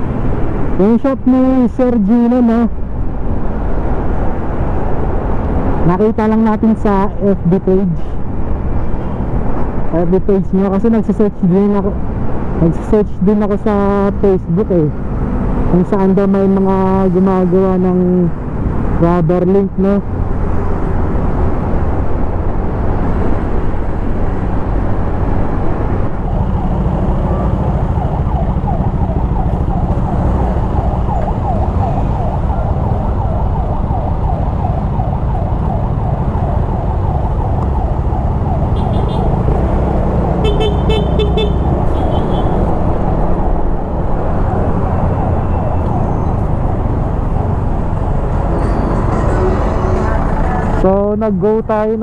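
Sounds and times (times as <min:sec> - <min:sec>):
city traffic: 0:00.0 - 0:52.0
wind and road rumble: 0:00.0 - 0:52.0
siren blips: 0:26.1 - 0:39.5, 0:44.9 - 0:50.8.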